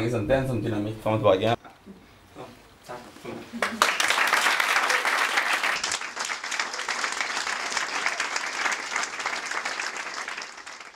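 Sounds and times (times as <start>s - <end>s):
audience applauding: 3.6s - 10.9s.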